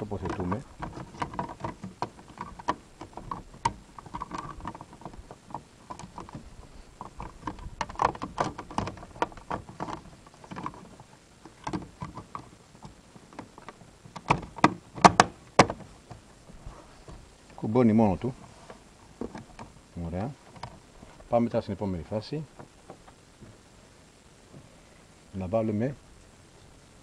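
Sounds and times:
plastic clicks and knocks: 0.0 - 16.2.

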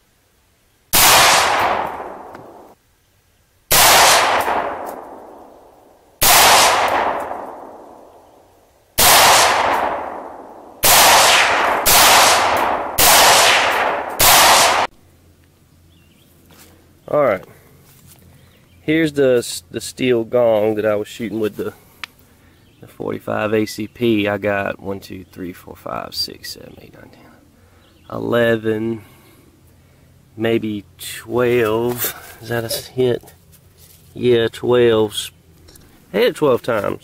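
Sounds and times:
rifle shots echoing: 0.9 - 2.8, 3.7 - 8.4, 9.0 - 14.9.

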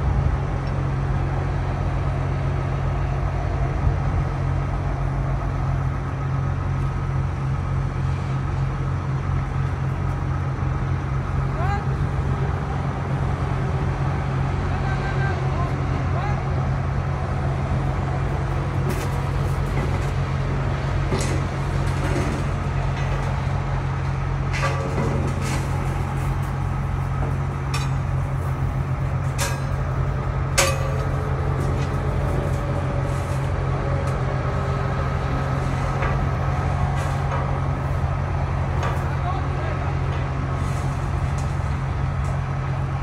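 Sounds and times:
heavy diesel engine running: 0.0 - 43.0
metallic clanks of steel: 24.4 - 26.6, 27.3 - 28.3, 29.2 - 32.6.

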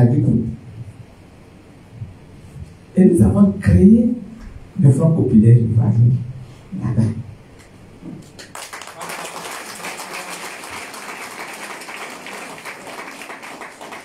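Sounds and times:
audience applauding: 8.4 - 14.0.

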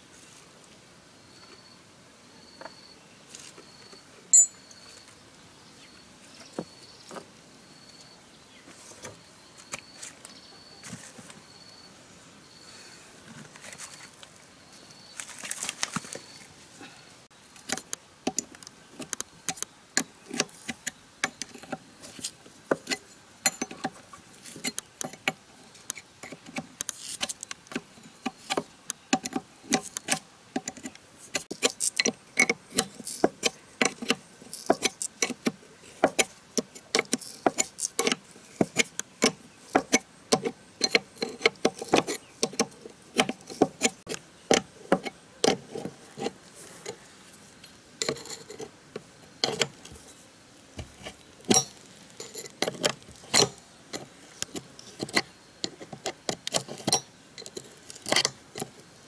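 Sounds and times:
metal tools clinking and knocking: 4.3 - 4.9, 22.8 - 24.0, 51.5 - 53.6.

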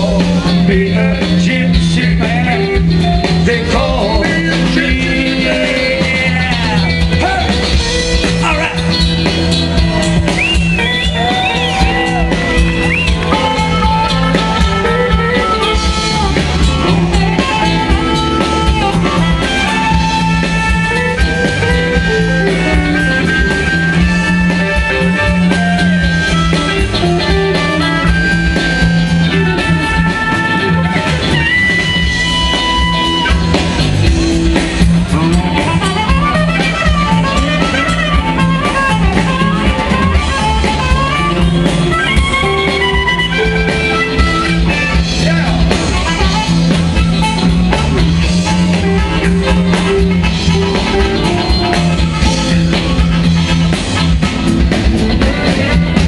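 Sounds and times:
blues band playing: 0.0 - 56.0
electric guitar bending lead notes: 0.0 - 56.0.

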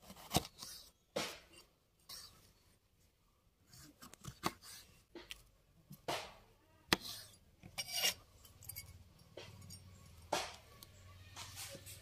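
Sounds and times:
knife cutting bell pepper on board: 6.0 - 8.2.

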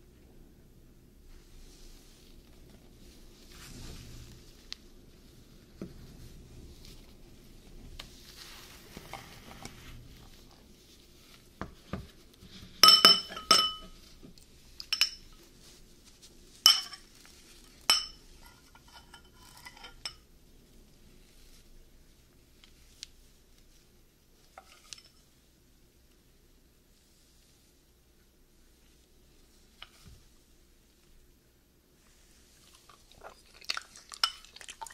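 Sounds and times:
metal spoon clinking glass bowl: 12.8 - 14.0, 14.9 - 15.3, 16.7 - 17.0, 17.8 - 20.2, 34.1 - 34.9.

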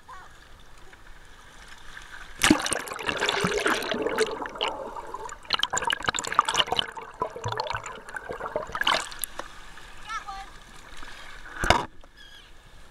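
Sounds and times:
splash into water: 2.4 - 9.4
underwater gurgling and bubbling: 2.4 - 9.4
underwater clicks and crackles: 2.4 - 9.6, 10.6 - 12.1.

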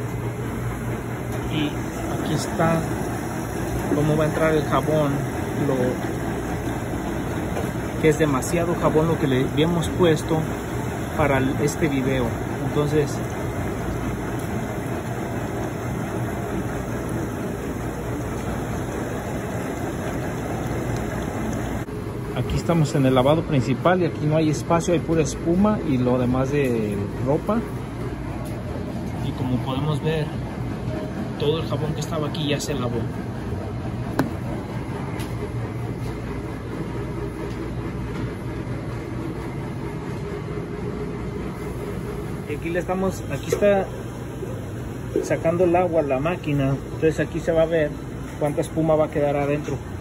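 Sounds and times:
low machine hum: 0.0 - 50.0
washing machine running: 0.0 - 50.0.

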